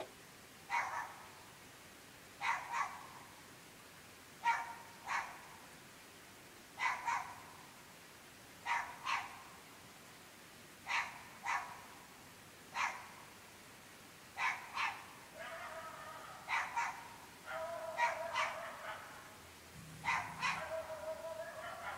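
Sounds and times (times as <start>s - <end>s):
dog barking: 0.7s - 1.2s, 2.4s - 3.1s, 4.4s - 5.4s, 6.8s - 7.4s, 8.6s - 9.4s, 10.9s - 11.8s, 12.8s - 13.1s, 14.4s - 19.4s, 20.0s - 21.9s.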